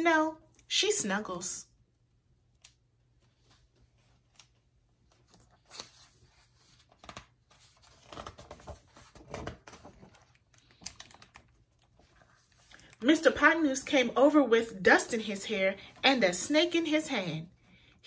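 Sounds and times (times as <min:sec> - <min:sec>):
book page turning: 0:03.2 - 0:13.0.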